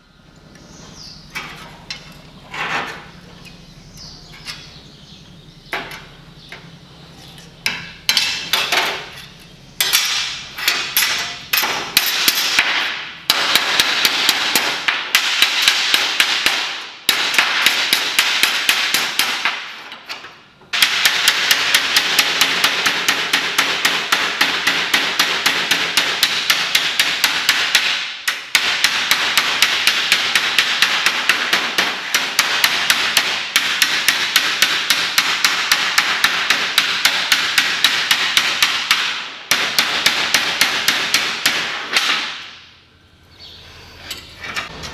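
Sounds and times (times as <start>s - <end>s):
hammer striking sheet steel: 7.7s - 9.1s, 9.8s - 20.0s, 20.7s - 42.8s.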